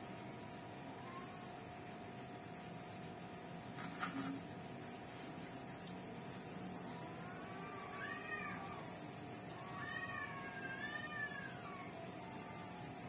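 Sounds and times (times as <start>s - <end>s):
faint steady hum: 0.0s - 13.0s
cat meowing: 7.2s - 8.9s, 9.6s - 12.8s.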